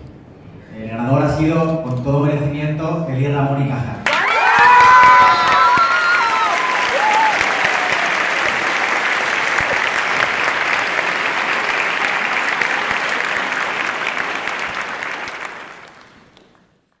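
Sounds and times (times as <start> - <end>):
audience applauding: 4.1 - 17.0.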